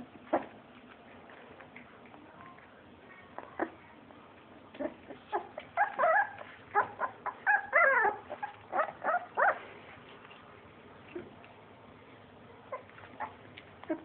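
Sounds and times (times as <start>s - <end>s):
puppy crying: 4.8s - 9.6s.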